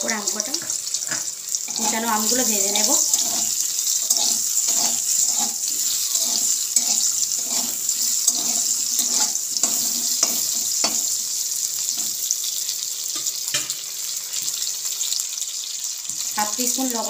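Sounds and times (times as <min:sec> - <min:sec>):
food sizzling in oil: 0:00.0 - 0:17.0
spatula scraping pan: 0:00.5 - 0:12.2
spatula tapping pan: 0:08.2 - 0:11.1.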